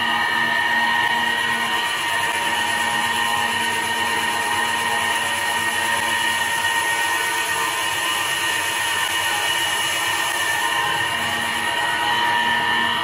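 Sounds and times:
lathe cutting head whine: 0.0 - 13.0
wood being cut: 0.0 - 13.0.

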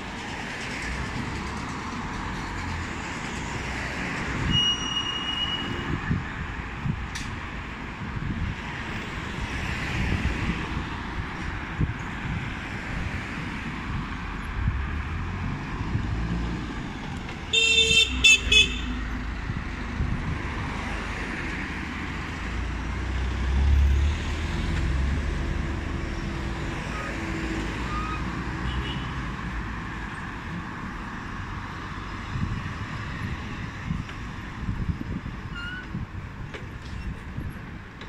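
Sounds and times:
street traffic rumbling: 0.0 - 38.0
vehicle horn honks: 17.5 - 18.9.

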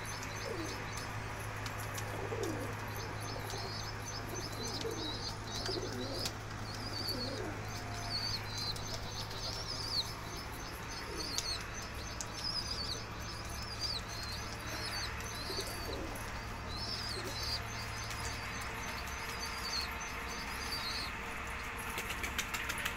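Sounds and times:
pigeons cooing: 0.0 - 1.2, 1.8 - 21.1
small birds chirping: 0.0 - 22.9
wings flapping: 21.8 - 22.9.

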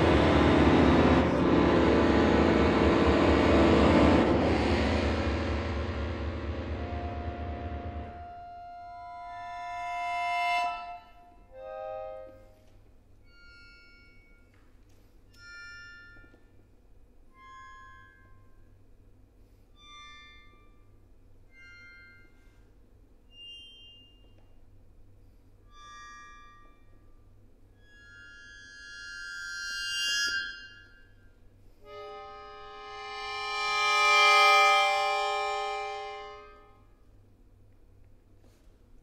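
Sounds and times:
solo accordion chords: 0.0 - 14.4, 31.7 - 36.9.

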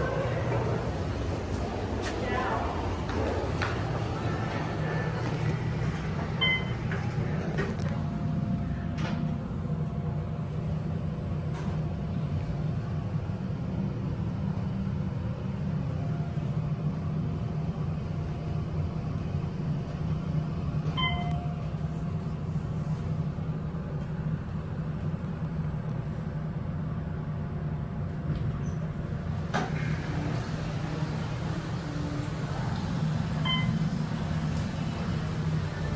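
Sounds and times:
elevator doors sliding open: 0.0 - 9.6, 28.2 - 35.9
elevator hum: 0.0 - 35.9
elevator chime: 6.4 - 7.1, 20.9 - 21.7, 33.4 - 34.0.

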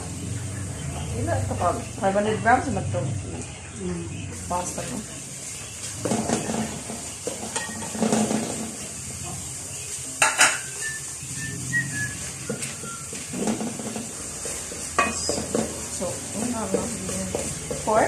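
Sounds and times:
meat sizzling in a frying pan: 4.3 - 18.0
wooden spatula scraping pan: 5.8 - 9.0, 10.4 - 18.0.

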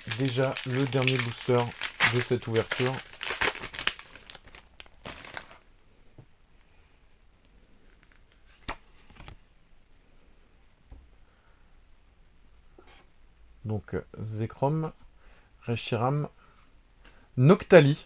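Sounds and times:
foil wrapper crinkling: 0.0 - 5.7.

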